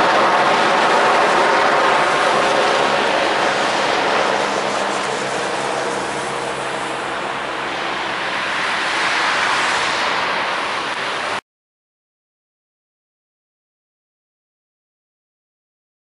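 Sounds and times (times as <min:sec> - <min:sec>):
helicopter rotor and turbine: 0:00.0 - 0:11.4.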